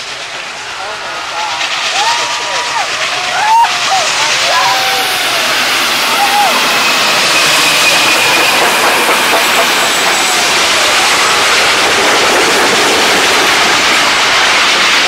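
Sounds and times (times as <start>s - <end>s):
steam locomotive rushing steam: 0.0s - 15.0s
train wheels rolling on rails: 0.0s - 15.0s.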